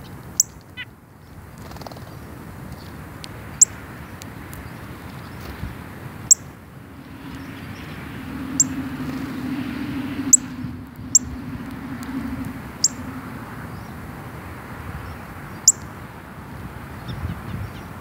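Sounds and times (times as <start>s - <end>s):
low hum: 6.0s - 15.6s.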